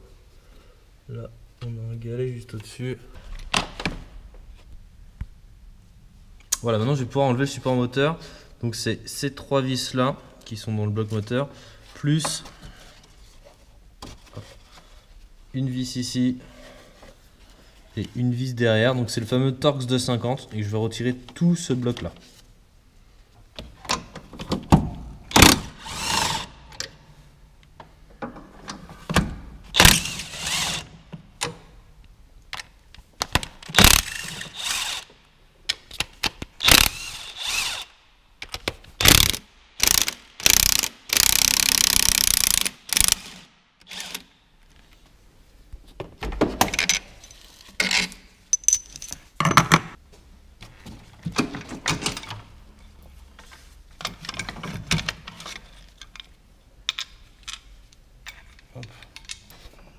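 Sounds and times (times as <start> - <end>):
ratchet wrench clicking: 33.8 - 35.0, 36.6 - 37.9, 39.0 - 44.2.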